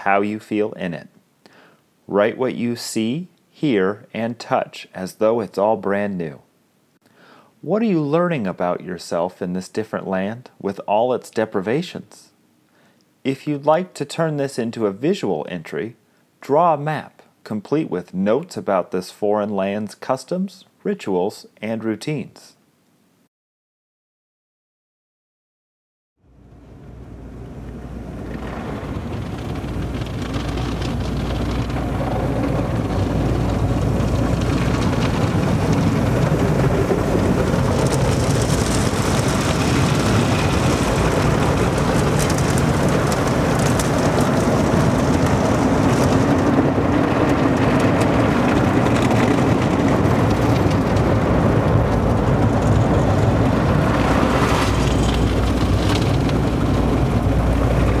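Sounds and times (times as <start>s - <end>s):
low hum: 26.3s - 58.0s
water spraying on car: 27.4s - 58.0s.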